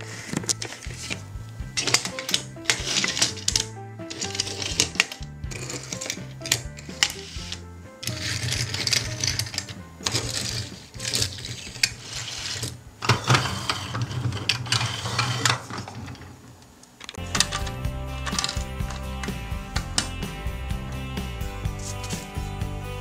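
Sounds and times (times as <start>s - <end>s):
toy wheels whirring and clicking: 0.0s - 20.2s.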